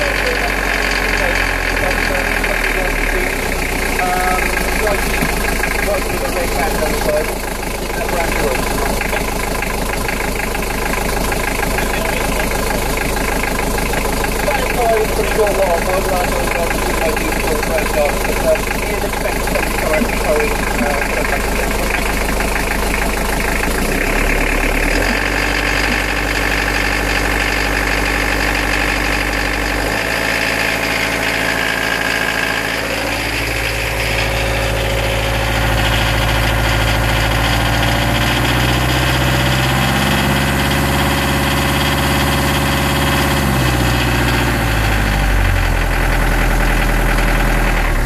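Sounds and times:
diesel engine revving: 0.0 - 48.0
engine knocking: 0.0 - 48.0.

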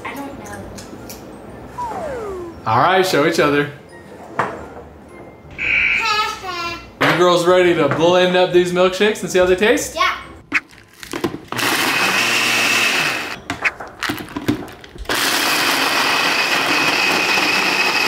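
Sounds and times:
blender motor whining: 11.5 - 13.4, 15.1 - 18.0.

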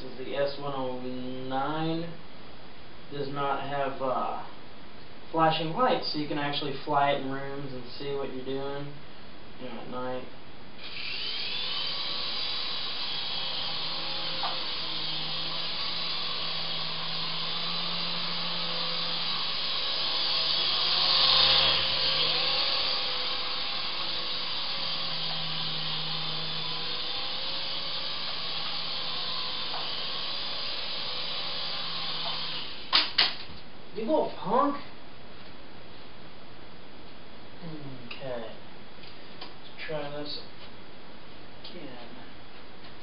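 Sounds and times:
toy helicopter rotors whirring: 10.8 - 33.4.

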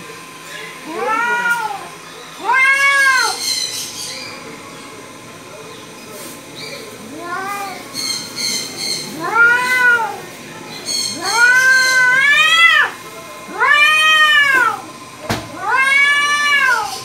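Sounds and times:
cat yowling: 0.8 - 3.7, 7.0 - 7.9, 8.9 - 10.3, 11.1 - 14.9, 15.5 - 17.0.

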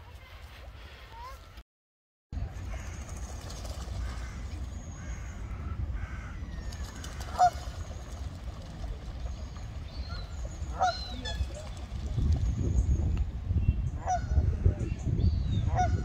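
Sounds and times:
steady low rumble: 2.4 - 16.0
geese honking: 7.0 - 7.7, 10.1 - 11.6.

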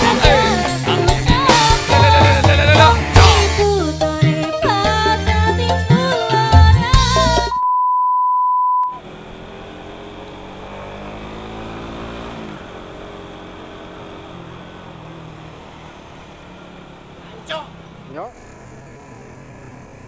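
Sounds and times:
motorcycle engine running: 0.0 - 3.9, 8.9 - 18.2
steady one-pitch beep: 7.5 - 9.0
road and traffic noise: 8.9 - 20.0.

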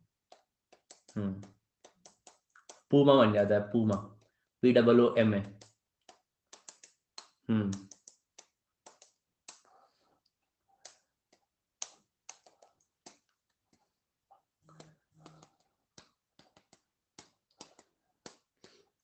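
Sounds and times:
soft low vocal sound: 1.1 - 1.5, 7.5 - 8.0.

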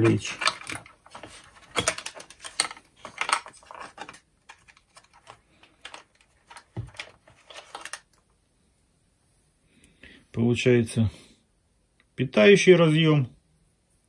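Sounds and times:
plastic clicks and rattles: 0.0 - 8.2.

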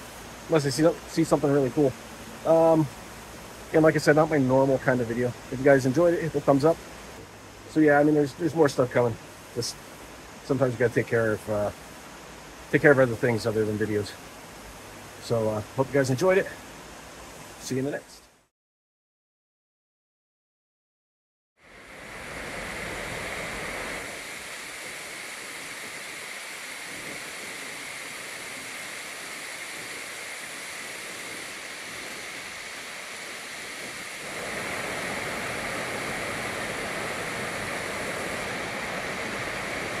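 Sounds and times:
river rapids rushing over rocks: 21.8 - 40.0.

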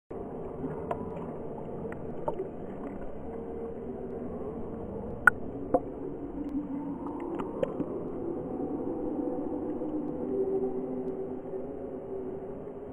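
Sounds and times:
muffled water splashing: 0.1 - 12.9.

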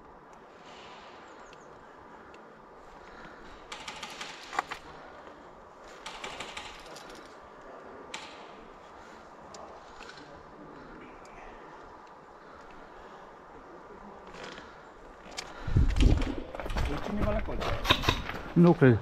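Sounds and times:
airsoft guns firing rapid clicks: 3.7 - 4.8, 5.9 - 7.2.

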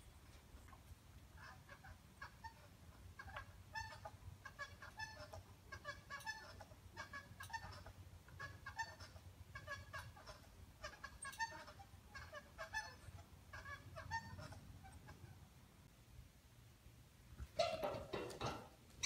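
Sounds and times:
bar rail and cables squeaking: 1.4 - 15.1.

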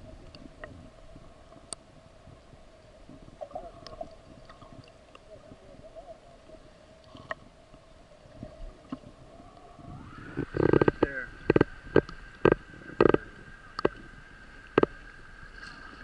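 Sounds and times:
underwater hum: 0.0 - 16.0
faint clicks and ticks: 1.5 - 1.9, 3.4 - 5.3, 7.0 - 9.7, 10.3 - 15.8.

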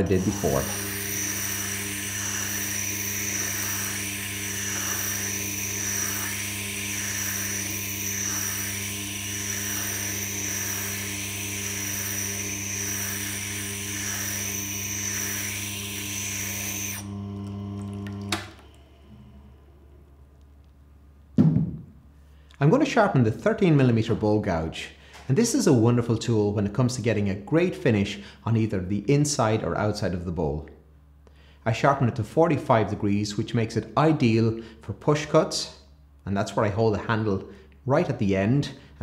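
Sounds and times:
stone rasping on grinding wheel: 0.0 - 17.1
grinding machine motor hum: 0.0 - 20.3.

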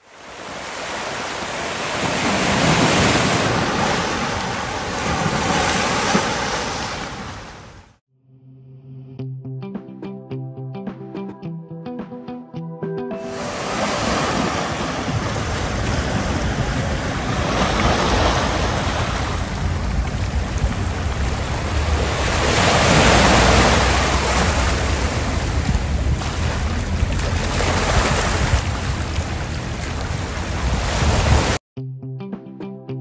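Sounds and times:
sea waves on rocky shore: 0.0 - 7.8, 13.3 - 31.6
wind rumbling on microphone: 13.9 - 31.6.

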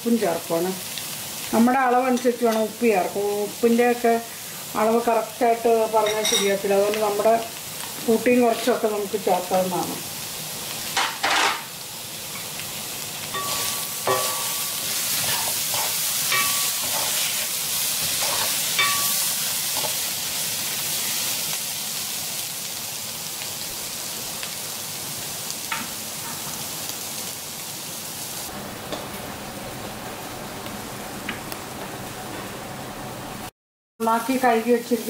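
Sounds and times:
food sizzling in oil: 0.0 - 32.2, 34.0 - 35.0
spatula scraping a pan: 13.4 - 20.0.

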